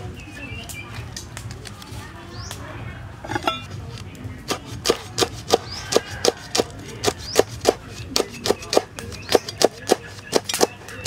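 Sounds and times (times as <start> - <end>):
knife chopping on wooden board: 4.5 - 11.0.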